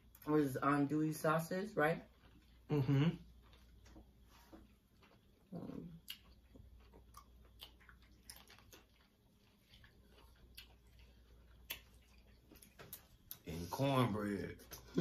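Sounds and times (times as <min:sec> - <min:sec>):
chewing: 0:02.0 - 0:13.7.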